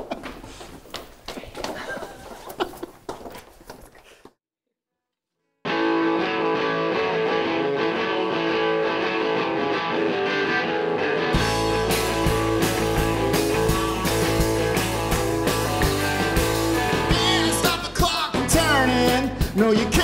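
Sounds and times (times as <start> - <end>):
electric guitar playing: 5.7 - 17.9
drums and bass rock beat: 11.3 - 20.0.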